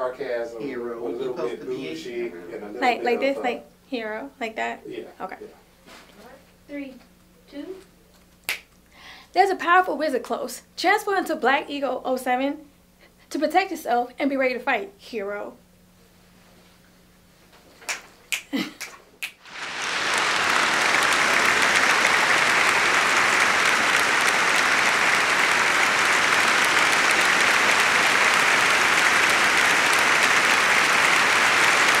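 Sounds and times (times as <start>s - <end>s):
crowd applause: 19.4s - 32.0s.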